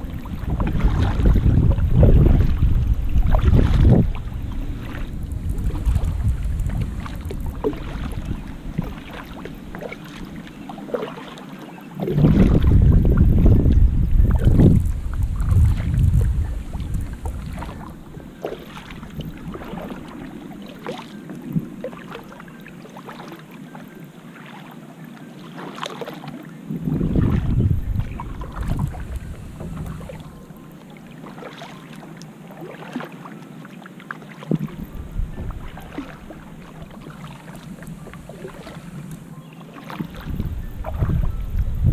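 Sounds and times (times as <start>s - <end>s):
wind gusts on microphone: 0.0s - 10.4s, 12.0s - 20.1s, 26.7s - 30.5s, 34.5s - 39.3s, 40.0s - 41.9s
paddle splashing water: 0.0s - 41.9s.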